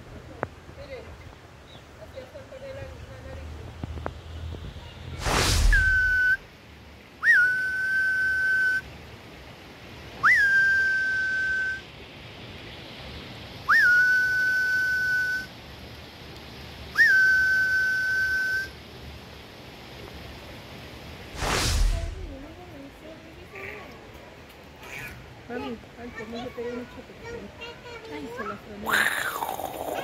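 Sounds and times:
whoosh: 5.1 - 6.4, 21.3 - 22.4
long steady whistles: 7.2 - 9.0, 10.2 - 11.9, 13.6 - 15.6, 16.9 - 18.8.

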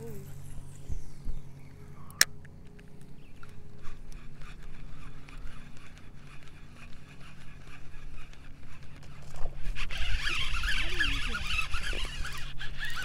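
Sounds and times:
fishing reel whirring: 0.0 - 1.3, 3.3 - 13.0
low steady hum: 0.0 - 13.0.

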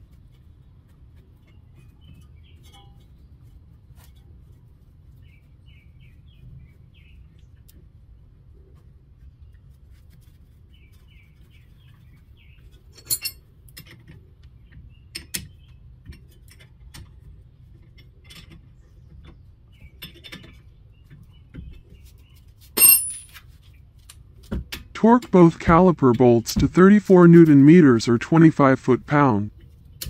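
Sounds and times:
high metallic ring: 13.0 - 13.4, 22.8 - 23.3
metallic clinks of hand tools: 13.0 - 13.4, 22.8 - 23.3.

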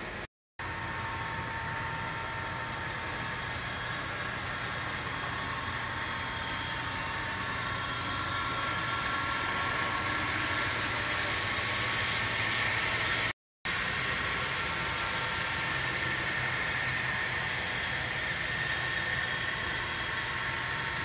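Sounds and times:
model locomotive drone and whine: 0.0 - 21.0.

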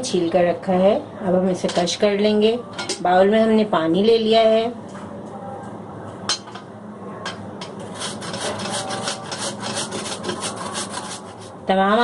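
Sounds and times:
potato grating on metal grater: 7.8 - 11.6.

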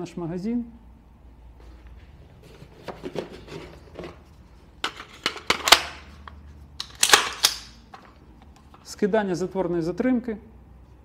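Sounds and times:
metallic clicks of rifle magazine: 6.8 - 7.8.

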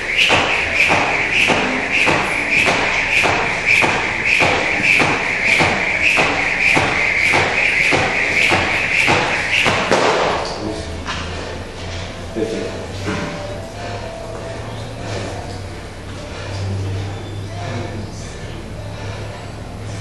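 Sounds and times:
jump rope whirring: 0.0 - 12.0
rope and feet tapping floor: 0.0 - 12.1.

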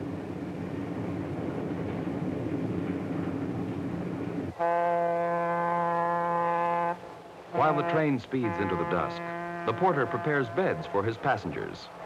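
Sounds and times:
train rumbling on rails: 0.0 - 12.0
locomotive horn blast: 4.5 - 11.7.

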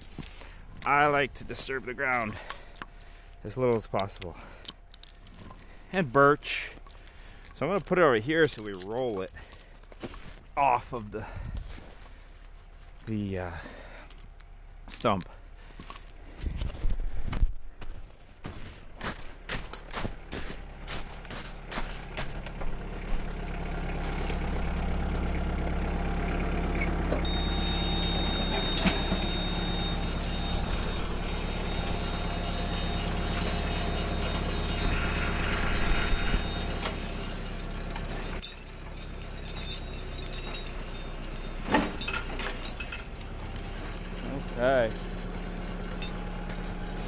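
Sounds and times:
tractor engine running: 0.0 - 47.0
footsteps crunching in snow: 9.9 - 10.6, 11.2 - 13.2, 16.3 - 25.4
thin steady whine: 26.7 - 47.0.

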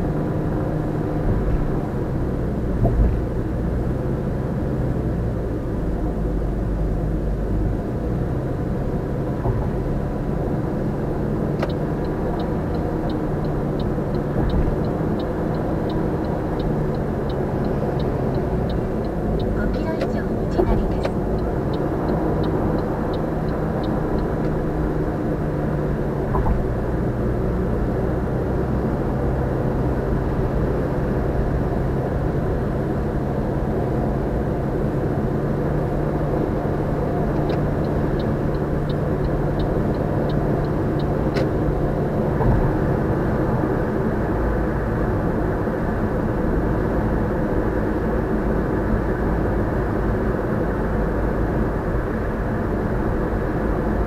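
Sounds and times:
car road and tyre noise: 0.0 - 54.0
light ticking: 11.6 - 24.6, 37.4 - 41.6.

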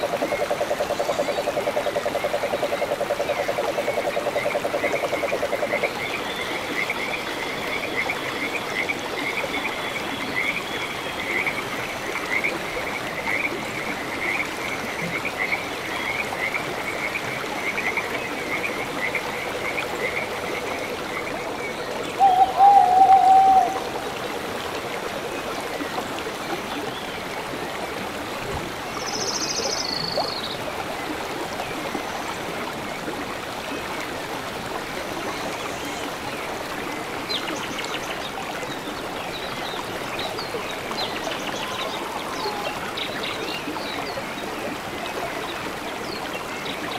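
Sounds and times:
low wavering animal call: 22.2 - 24.1.

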